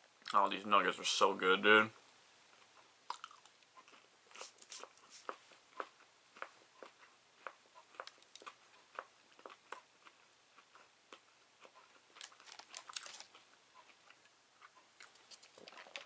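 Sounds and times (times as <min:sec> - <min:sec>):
faint chewing: 0:02.5 - 0:16.0
food packaging crinkling: 0:12.1 - 0:13.4, 0:15.0 - 0:16.0.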